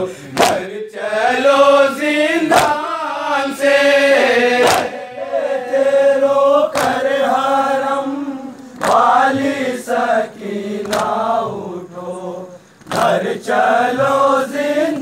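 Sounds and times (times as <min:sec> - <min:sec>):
man chanting a lament: 0:00.0 - 0:06.1
chest slapping: 0:00.3 - 0:00.7, 0:02.5 - 0:02.8, 0:04.6 - 0:04.9, 0:06.7 - 0:07.0.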